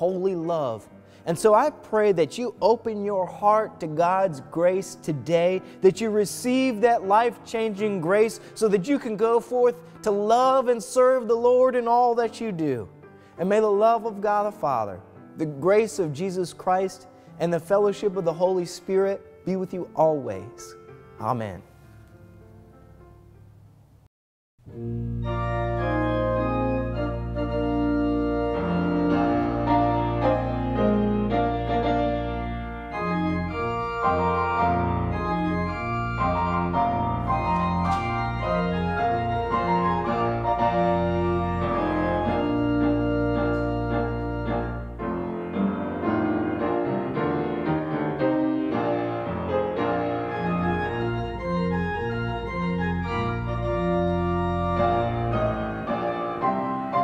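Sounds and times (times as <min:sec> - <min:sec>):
deep bass pedal notes: 0:24.7 - 0:45.0, 0:50.3 - 0:55.8
organ playing held chords: 0:24.7 - 0:57.0.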